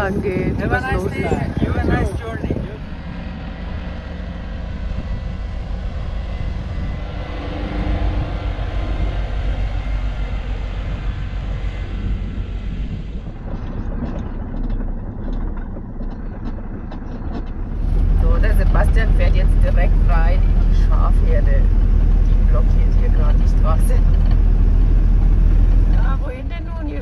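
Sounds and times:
vehicle driving on gravel: 0.0 - 27.0
knocks and rattles: 9.7 - 27.0.

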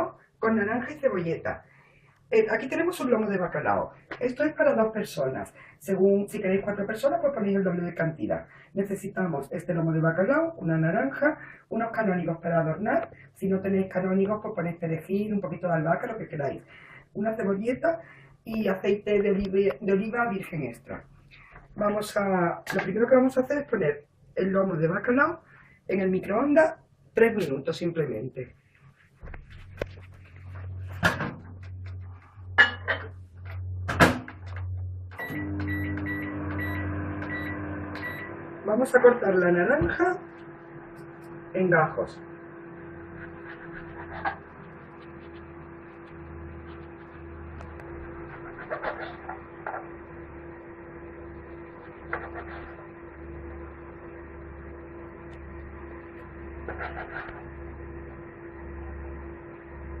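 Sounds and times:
microwave humming: 30.7 - 60.0.

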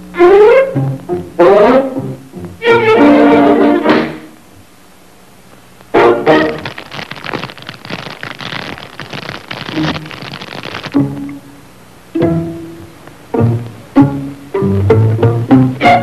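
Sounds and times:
dense rattling noise: 6.5 - 11.1.

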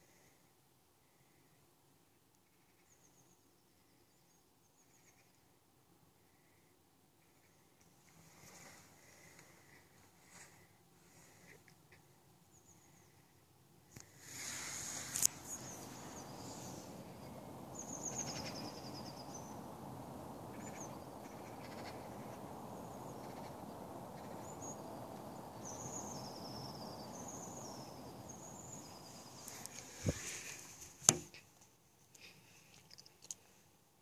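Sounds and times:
small birds chirping: 2.4 - 5.6, 6.2 - 31.2
low background rumble: 14.8 - 31.2.

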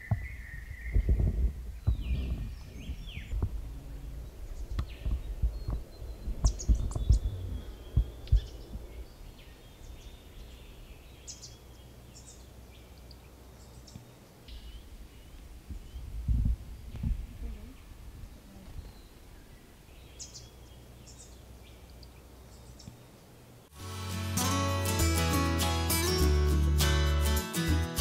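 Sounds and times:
heavy low thumps and rumbles: 0.0 - 9.2, 15.6 - 18.3
small birds chirping: 0.0 - 23.5.

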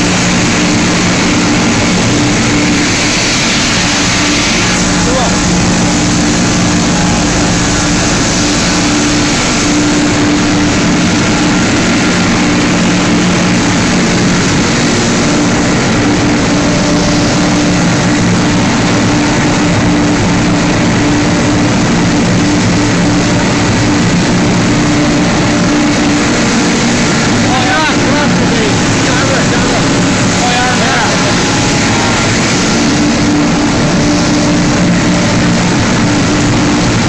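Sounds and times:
constant low hum: 0.0 - 37.0
machinery din: 24.6 - 37.0.

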